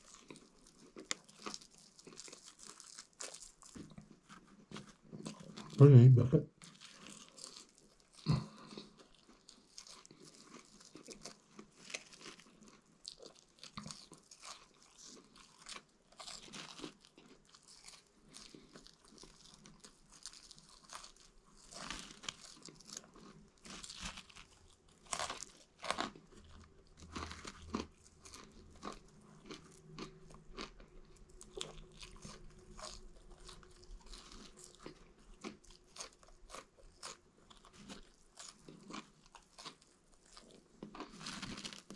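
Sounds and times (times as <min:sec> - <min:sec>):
person chewing fries: 0:00.0 - 0:41.9.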